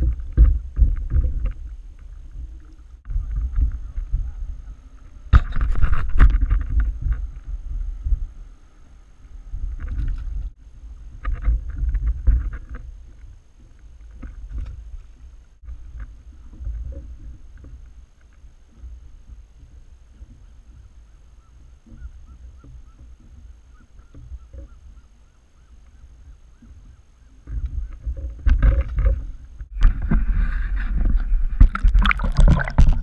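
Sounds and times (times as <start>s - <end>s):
wind buffeting microphone: 0.0s - 13.3s, 25.9s - 33.0s.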